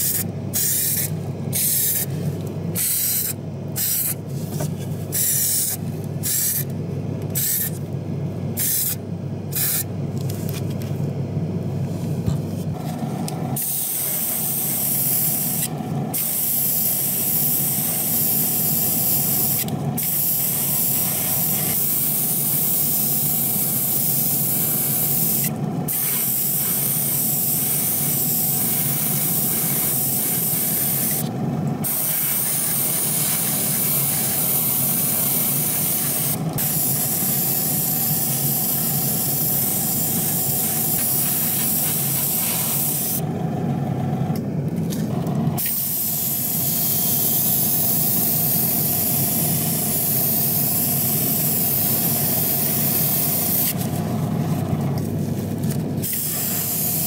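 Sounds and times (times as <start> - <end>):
airbrush hissing: 0.0 - 2.2, 2.8 - 4.2, 5.1 - 6.7, 7.4 - 7.8, 8.6 - 9.9, 13.6 - 31.2, 31.8 - 43.2, 45.6 - 53.9, 56.0 - 57.0
steady low hum: 0.0 - 57.0.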